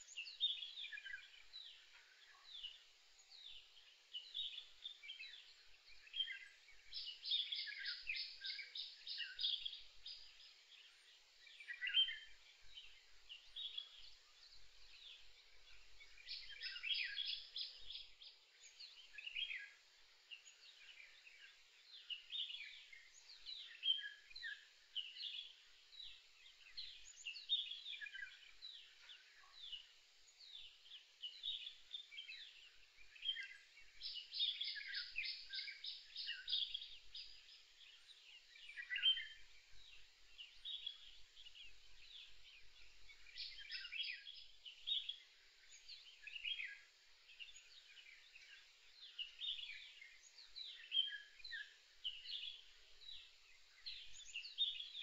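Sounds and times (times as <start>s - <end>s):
birds chirping and calling: 15.0s - 18.1s, 30.9s - 37.9s, 38.5s - 39.4s.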